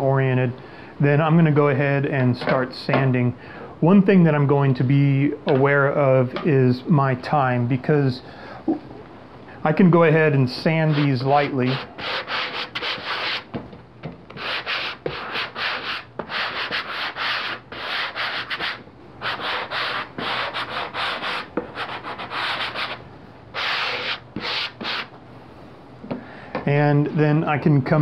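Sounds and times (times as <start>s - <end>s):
sanding block scuffing plastic: 10.9s - 13.5s, 14.4s - 23.0s, 23.6s - 25.1s.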